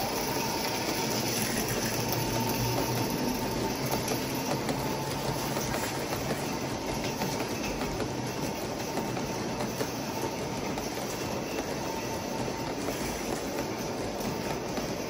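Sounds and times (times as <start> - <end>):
model train wheels rolling on rail: 0.0 - 15.0.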